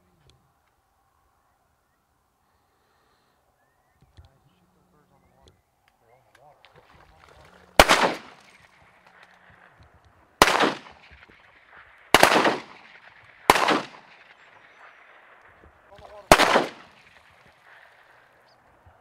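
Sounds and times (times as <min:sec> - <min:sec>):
shotgun blasts with echo: 0:07.7 - 0:09.5, 0:10.4 - 0:18.2.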